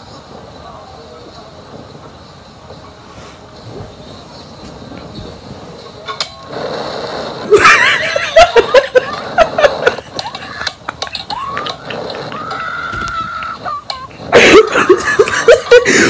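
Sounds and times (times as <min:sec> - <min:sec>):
shrieking laughter: 0:07.4 - 0:16.0
people screaming: 0:11.3 - 0:16.0.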